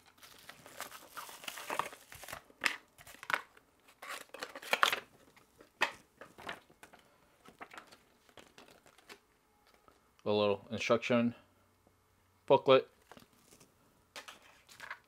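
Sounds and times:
foil bubble-wrap crinkling: 0.0 - 3.3
cardboard and paper rustling: 6.2 - 9.9, 13.0 - 15.0.

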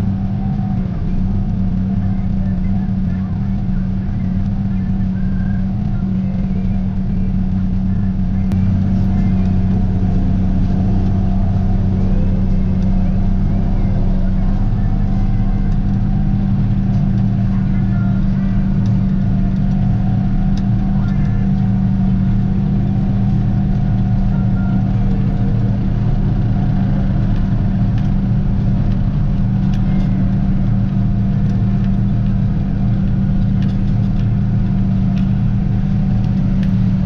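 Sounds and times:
harvester machinery noise: 0.0 - 37.0
tractor diesel engine running: 0.0 - 37.0.

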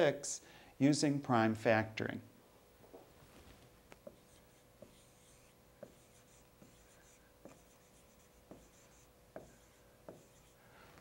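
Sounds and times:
marker scratching on whiteboard: 4.0 - 10.7.

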